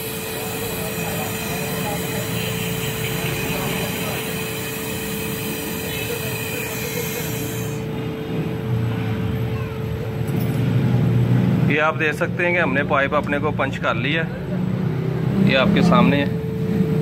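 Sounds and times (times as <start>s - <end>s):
torch flame hissing: 0.0s - 8.0s
steady low hum: 0.0s - 17.0s.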